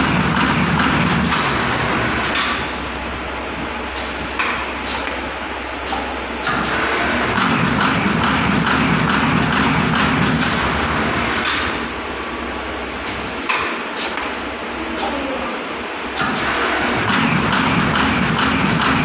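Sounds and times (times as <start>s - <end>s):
machine mechanical clatter: 0.0s - 2.8s, 5.9s - 11.9s, 16.1s - 19.0s.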